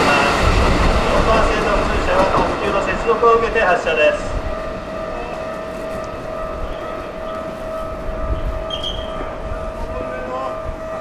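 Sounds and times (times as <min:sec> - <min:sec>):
electric train rumbling: 0:00.0 - 0:11.0
steady high-pitched tone: 0:02.6 - 0:11.0.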